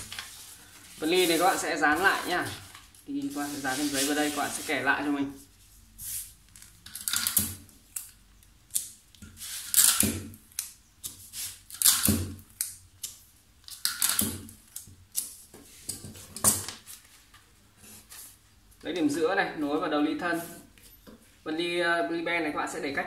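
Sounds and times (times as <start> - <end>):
paper rustling and crinkling: 0.0 - 5.1.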